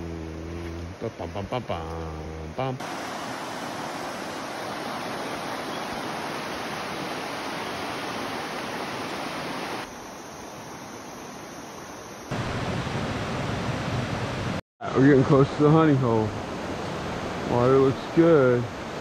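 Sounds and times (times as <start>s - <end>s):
river water rushing over stones: 2.8s - 9.9s.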